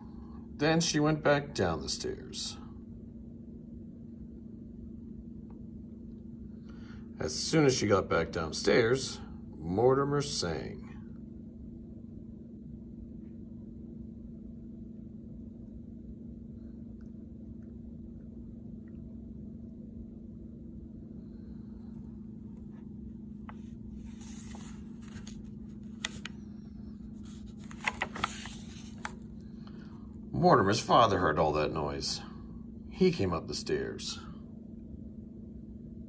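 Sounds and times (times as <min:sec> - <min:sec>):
steady low hum: 0:00.0 - 0:36.0
book pages rustling: 0:22.6 - 0:29.3.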